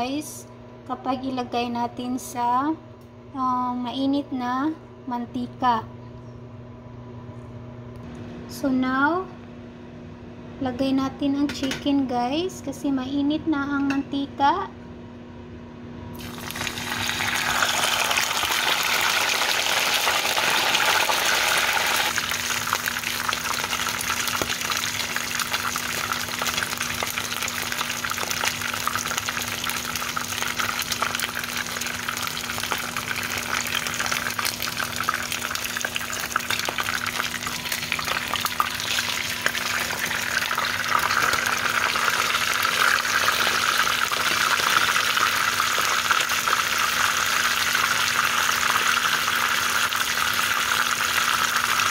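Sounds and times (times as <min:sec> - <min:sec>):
chicken sizzling in oil: 0:16.2 - 0:51.9.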